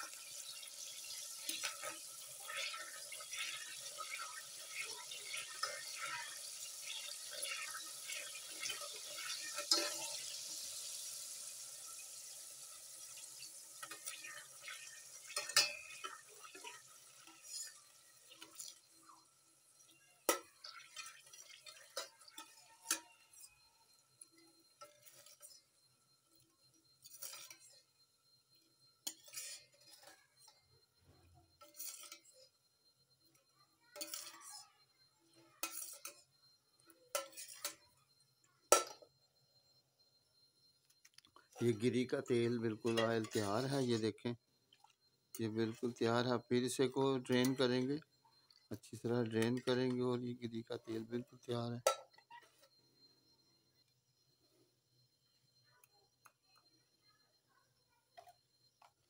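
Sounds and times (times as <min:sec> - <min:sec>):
coconut frying and crackling: 0:00.0 - 0:34.8, 0:35.4 - 0:38.0, 0:40.4 - 0:52.8
ladle scraping and knocking pot: 0:07.3 - 0:10.2, 0:13.8 - 0:18.8, 0:29.0 - 0:30.5, 0:31.6 - 0:32.3, 0:34.0 - 0:34.4, 0:35.6 - 0:36.3, 0:37.1 - 0:37.8, 0:42.9 - 0:43.9.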